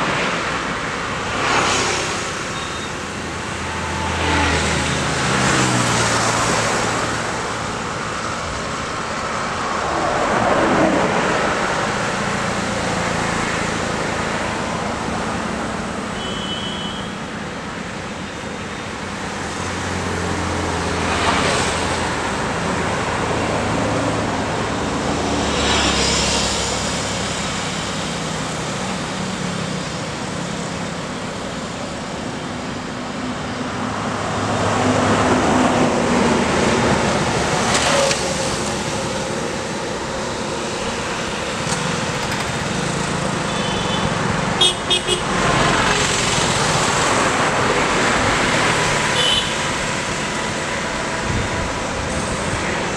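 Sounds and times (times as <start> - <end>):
vehicles passing: 0.0 - 52.9
vehicle horn toots: 16.2 - 17.1, 43.5 - 45.3, 49.2 - 49.7.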